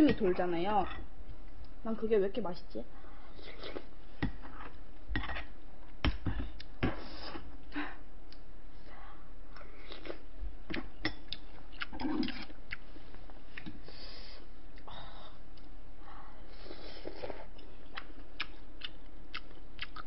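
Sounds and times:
chewing: 9.6s - 12.8s, 17.0s - 20.0s.

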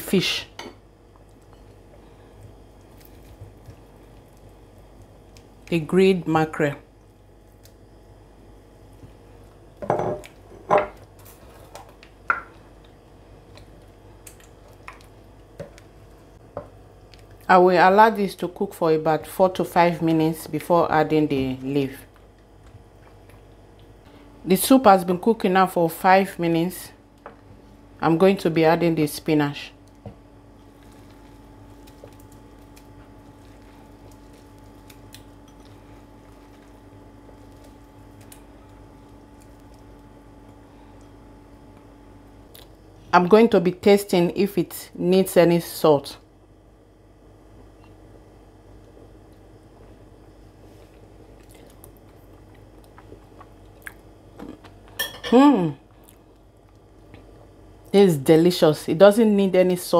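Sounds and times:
steady low hum: 0.0s - 59.9s
wet spinach squishing: 30.6s - 40.0s.

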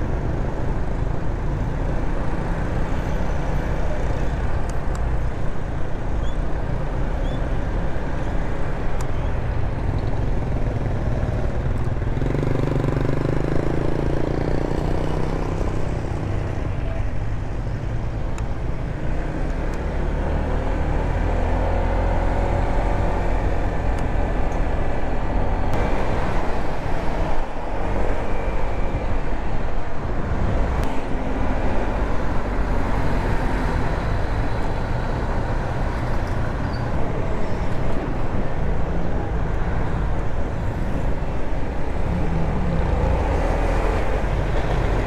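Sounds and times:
road noise: 0.0s - 45.0s.

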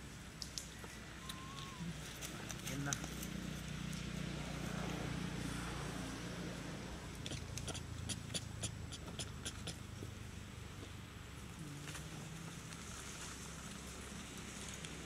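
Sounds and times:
dry leaves crackling underfoot: 0.4s - 5.0s, 11.3s - 15.0s.

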